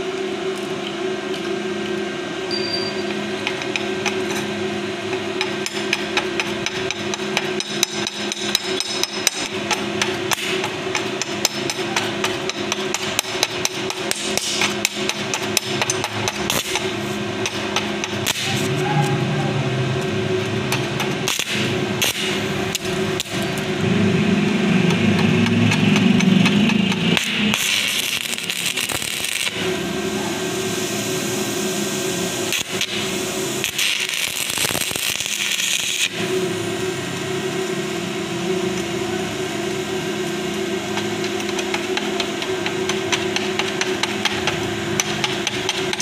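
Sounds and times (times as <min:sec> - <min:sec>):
welding arc crackling: 0:03.0 - 0:46.0
low hum: 0:16.8 - 0:33.7.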